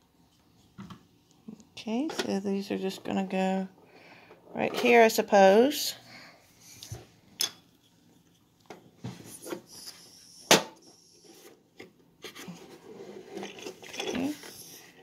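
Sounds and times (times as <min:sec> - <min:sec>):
plastic scraping on plastic: 0:12.2 - 0:15.0.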